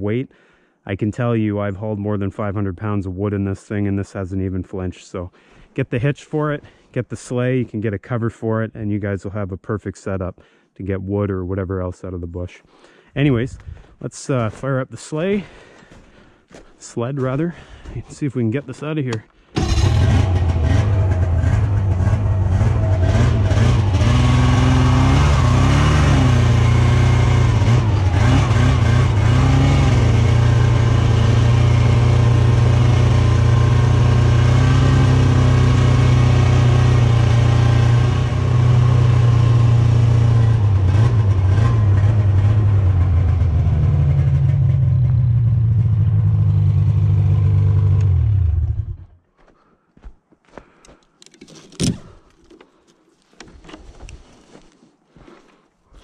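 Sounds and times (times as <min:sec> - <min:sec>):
snowmobile engine running: 0:19.6 - 0:49.0.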